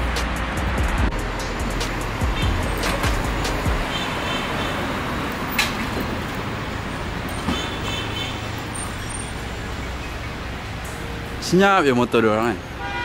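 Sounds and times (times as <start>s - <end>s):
city street traffic: 0.0s - 13.0s.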